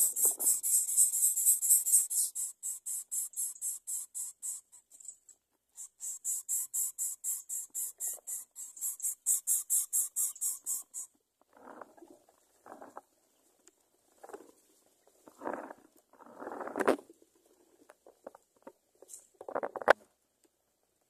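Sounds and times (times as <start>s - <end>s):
bird nestling begging calls: 0.0s - 4.7s, 5.8s - 11.1s.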